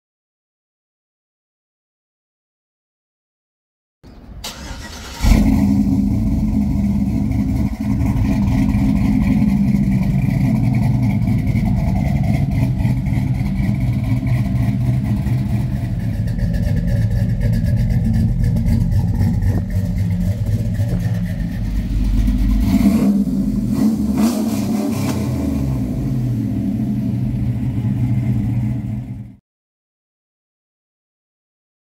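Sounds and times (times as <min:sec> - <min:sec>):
truck engine starting and idling: 0:04.1 - 0:29.4
engine revving: 0:04.4 - 0:29.4.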